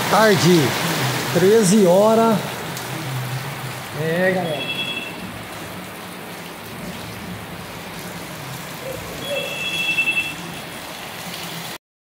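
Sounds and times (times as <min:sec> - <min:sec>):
heavy rain on pavement: 0:00.0 - 0:11.8
high steady tone: 0:04.4 - 0:05.2.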